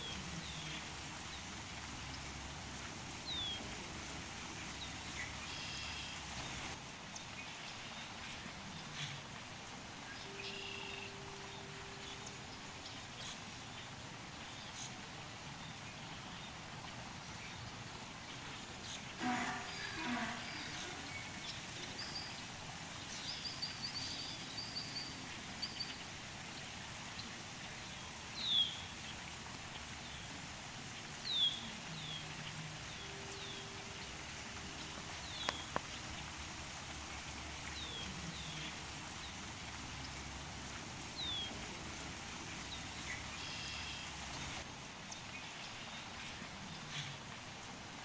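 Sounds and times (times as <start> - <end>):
background hiss: 0.0 - 48.0
small birds chirping: 4.6 - 9.3, 15.6 - 40.2.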